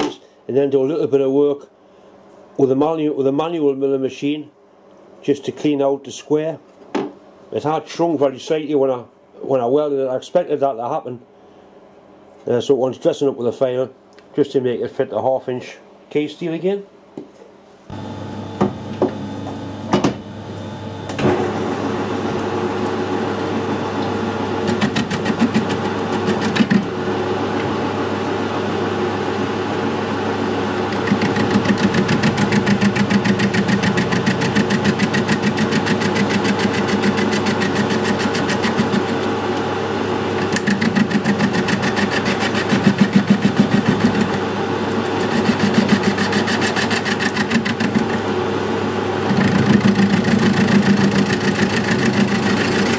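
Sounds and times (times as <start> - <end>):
metal lathe running: 21.6 - 29.4, 30.4 - 39.5, 40.3 - 52.9
fast even ticking of cut: 24.6 - 26.9, 30.8 - 39.3, 40.4 - 44.4, 45.0 - 48.2.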